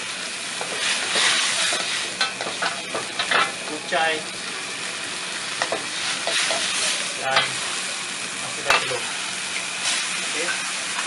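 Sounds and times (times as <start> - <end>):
food sizzling in a wok: 0.0 - 11.0
metal spatula scraping a wok: 0.6 - 3.6, 5.6 - 7.6.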